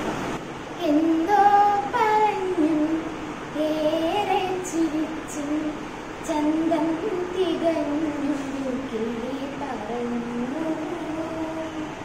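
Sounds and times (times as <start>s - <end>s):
woman singing slow song: 0.6s - 12.0s.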